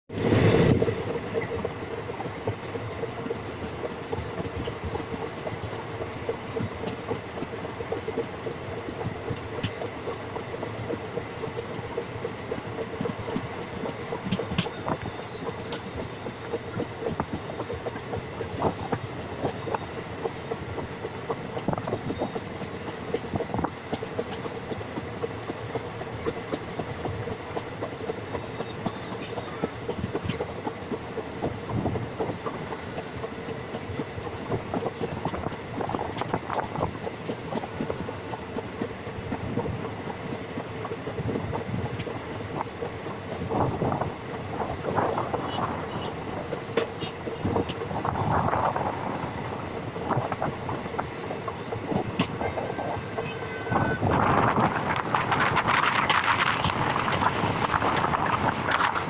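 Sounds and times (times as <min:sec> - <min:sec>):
train wheels rumbling on rail: 0:00.1 - 0:59.0
wheels clicking and knocking: 0:00.7 - 0:59.0.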